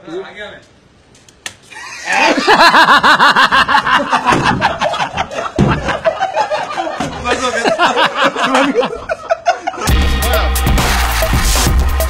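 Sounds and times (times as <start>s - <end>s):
loud rapid laughter: 1.7s - 10.1s.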